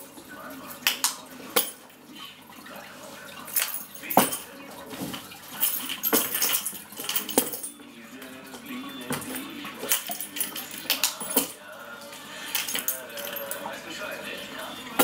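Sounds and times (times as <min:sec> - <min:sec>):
keys clinking and jangling: 0:03.5 - 0:04.5, 0:05.5 - 0:07.8, 0:09.2 - 0:11.6, 0:12.5 - 0:13.7.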